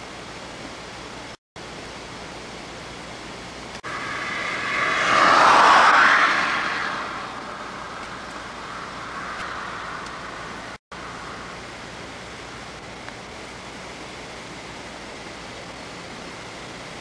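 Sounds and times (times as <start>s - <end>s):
steady rushing noise: 3.8s - 10.8s.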